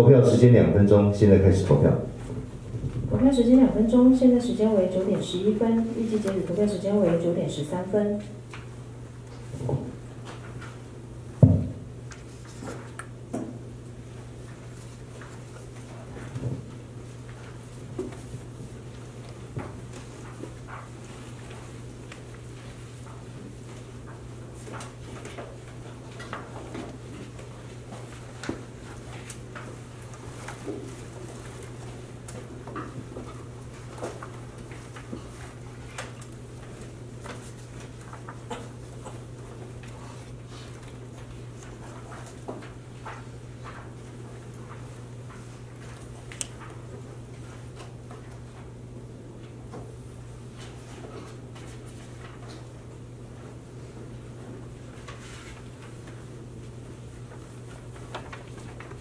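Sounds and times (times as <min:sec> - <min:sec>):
steady low hum: 0:00.0 - 0:59.0
footsteps and handling knocks: 0:11.4 - 0:11.9.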